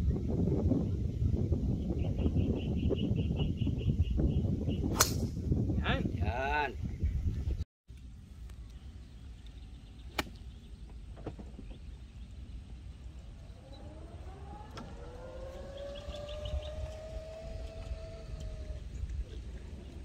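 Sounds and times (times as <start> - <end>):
low steady rumble: 6.9 - 20.0
motor whine: 12.7 - 20.0.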